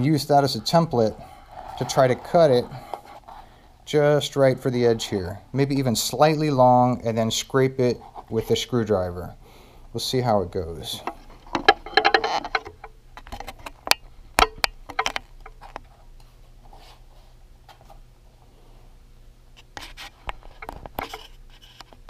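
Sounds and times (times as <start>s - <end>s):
sharp clicks and knocks: 11.0s - 15.9s.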